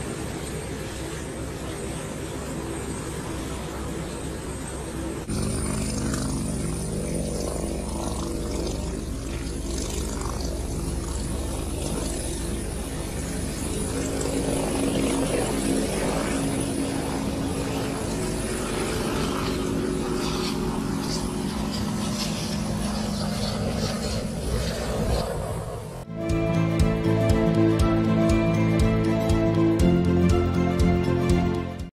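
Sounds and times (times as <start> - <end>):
helicopter engine and rotor: 0.0 - 31.9.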